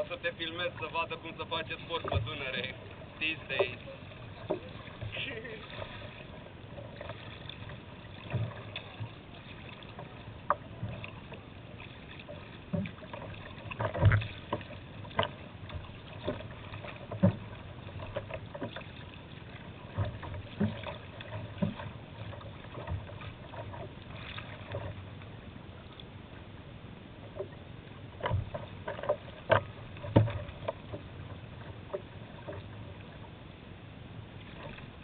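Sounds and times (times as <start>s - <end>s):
steady wash of water: 0.0s - 35.0s
water slapping against kayak: 0.0s - 35.0s.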